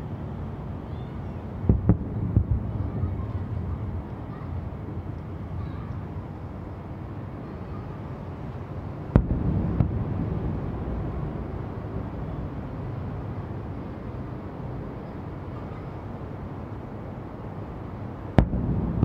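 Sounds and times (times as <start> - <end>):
steady low rumble: 1.4 - 7.4, 8.2 - 15.5, 16.2 - 19.0
firework bang: 1.6 - 2.8, 9.1 - 12.2, 18.4 - 19.0.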